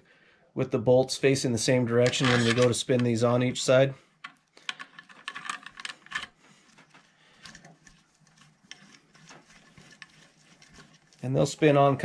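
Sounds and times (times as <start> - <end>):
metallic clicks and rattles: 2.0 - 3.3, 4.2 - 9.4.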